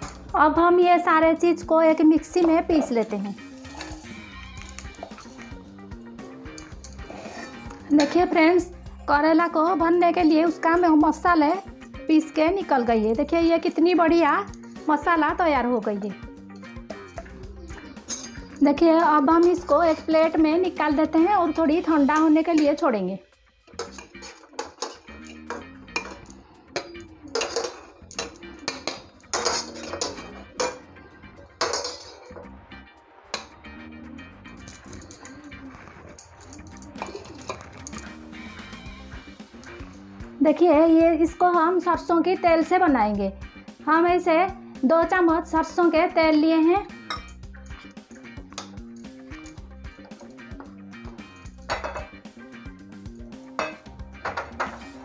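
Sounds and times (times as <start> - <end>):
instrumental music: 0.0 - 55.0
steel spoon clinking and scraping: 2.7 - 5.7, 6.4 - 8.6, 16.5 - 20.4, 23.7 - 32.5, 34.5 - 40.1, 47.0 - 52.2, 53.6 - 55.0.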